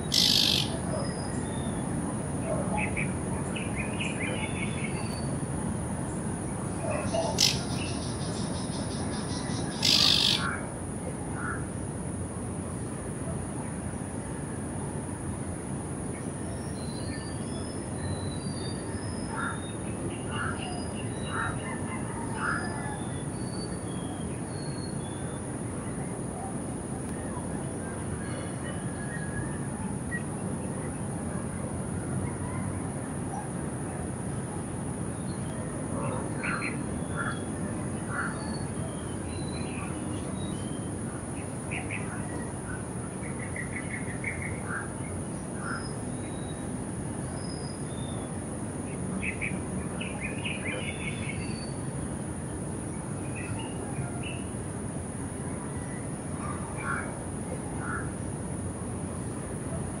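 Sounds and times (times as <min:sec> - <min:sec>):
low rumble of city noise: 0:00.0 - 1:00.0
bird calling sharp notes: 0:00.1 - 0:00.8, 0:09.8 - 0:10.4.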